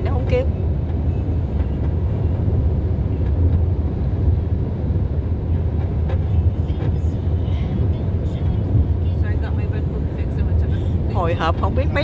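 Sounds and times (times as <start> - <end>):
road and wind rumble in car: 0.0 - 12.0.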